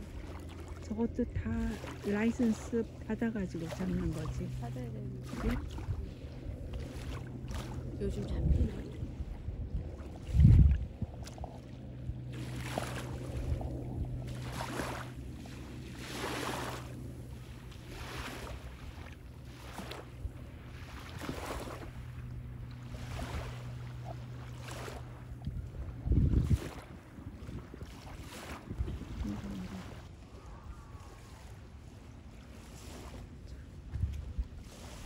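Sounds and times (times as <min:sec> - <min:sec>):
low boat engine hum: 0:00.0 - 0:35.0
small waves washing on shore: 0:00.0 - 0:35.0
wind thump on microphone: 0:09.5 - 0:11.4, 0:25.4 - 0:28.0.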